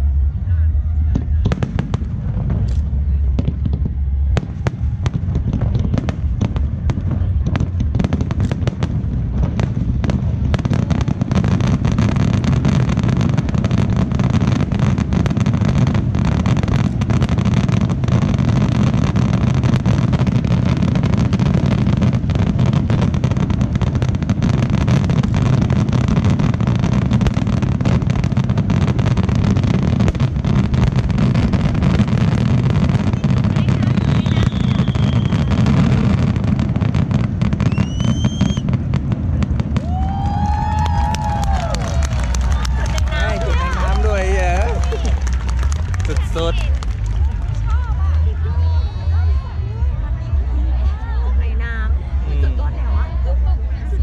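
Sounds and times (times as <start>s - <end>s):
deep rumble: 0.0s - 54.0s
firework shells bursting: 7.6s - 39.1s.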